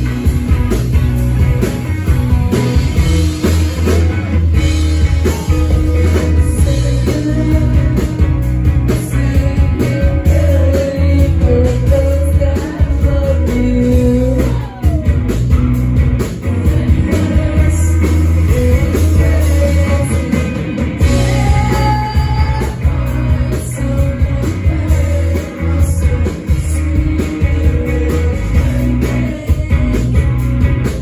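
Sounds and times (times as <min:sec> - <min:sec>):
live rock band playing: 0:00.0 - 0:31.0
lead vocal singing: 0:05.0 - 0:15.2, 0:16.4 - 0:30.4.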